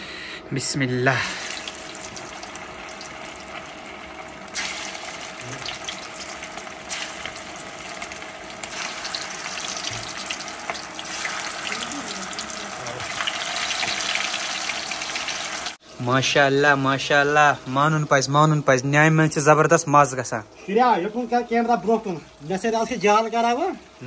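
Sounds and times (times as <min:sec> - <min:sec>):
meatballs sizzling in hot oil: 0:01.3 - 0:15.9.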